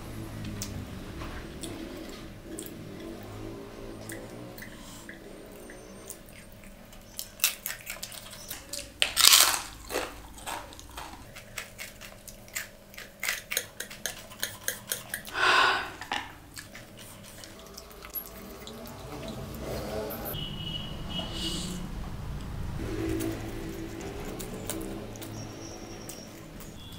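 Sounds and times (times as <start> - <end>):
crunching chews: 1.5 - 19.9, 22.8 - 26.9
crunchy bites into snack: 7.2 - 13.6.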